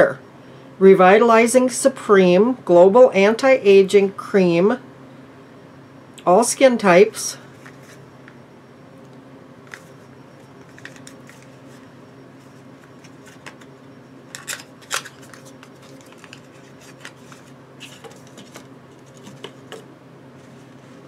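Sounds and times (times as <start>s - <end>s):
steady low hum: 0.0s - 21.0s
paper and cardboard crinkling: 10.7s - 11.8s, 14.3s - 19.8s.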